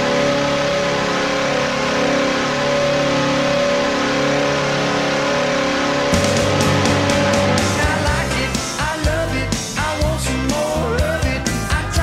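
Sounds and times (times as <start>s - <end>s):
goal horn blast: 0.0s - 9.3s
drums: 6.1s - 12.0s.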